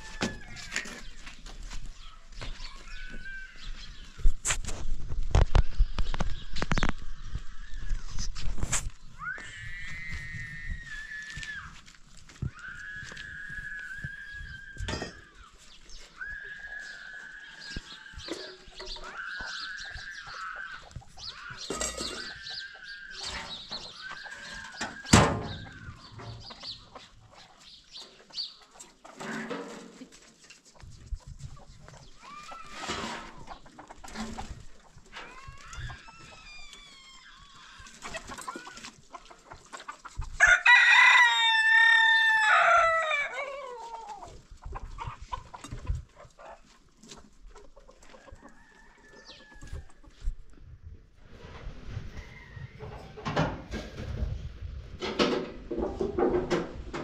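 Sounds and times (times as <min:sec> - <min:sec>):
hens clucking: 0:13.8 - 0:40.4, 0:41.5 - 0:50.6
rooster crowing: 0:40.4 - 0:43.8.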